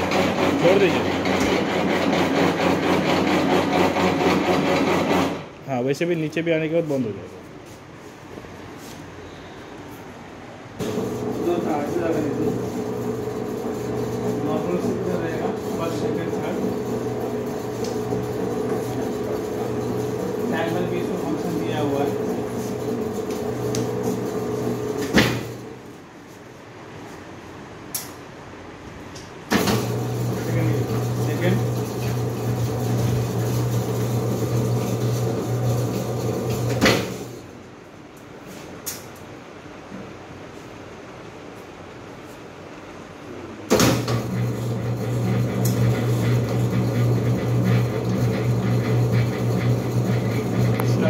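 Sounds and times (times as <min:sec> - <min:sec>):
mixer motor humming: 0:00.0 - 0:05.5, 0:10.8 - 0:25.8, 0:29.6 - 0:37.4, 0:44.0 - 0:51.0
mixer switching off clunk: 0:00.0 - 0:05.5, 0:10.8 - 0:20.6, 0:21.7 - 0:25.7, 0:29.5 - 0:37.4, 0:43.7 - 0:51.0.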